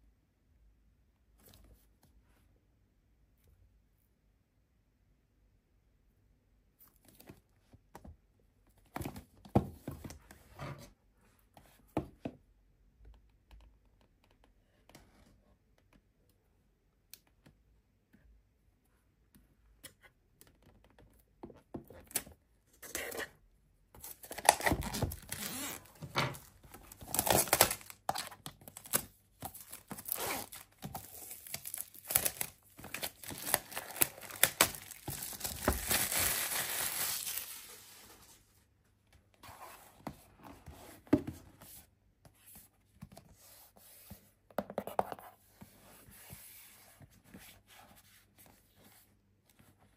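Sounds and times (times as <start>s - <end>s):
plastic shrink wrap crinkling: 24.2s - 37.9s.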